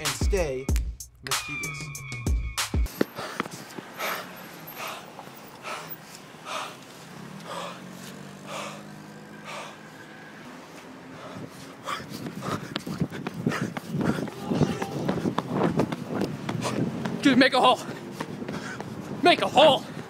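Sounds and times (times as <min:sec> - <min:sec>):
person breathing hard: 0:02.9 - 0:10.0, 0:11.0 - 0:14.4, 0:17.8 - 0:19.2.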